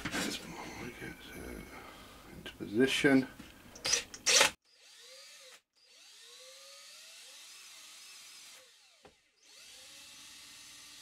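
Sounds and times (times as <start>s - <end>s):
cordless drill boring plastic: 3.8s - 11.0s.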